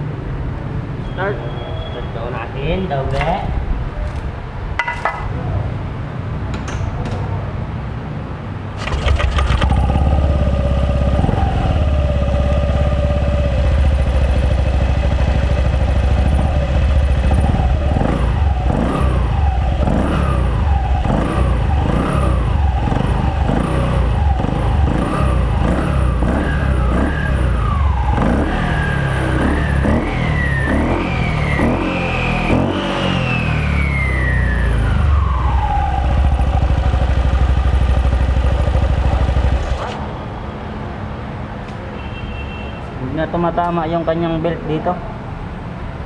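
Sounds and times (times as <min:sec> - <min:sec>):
scooter engine revving: 0:08.8 - 0:40.1.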